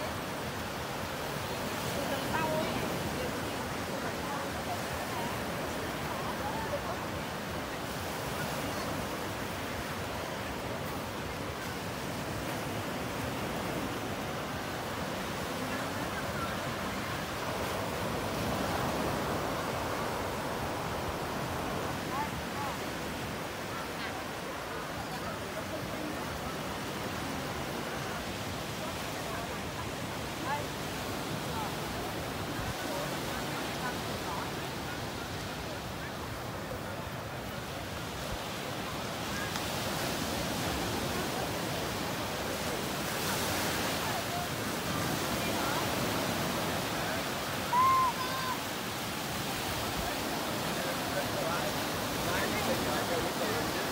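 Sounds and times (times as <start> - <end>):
waves breaking on beach: 0.0 - 53.9.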